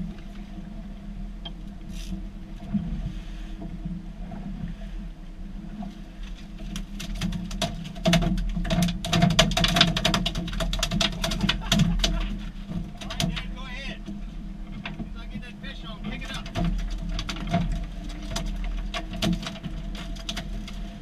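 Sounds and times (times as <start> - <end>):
outboard motors humming: 0.0 - 21.0
rapid clatter of clicks: 6.9 - 12.4.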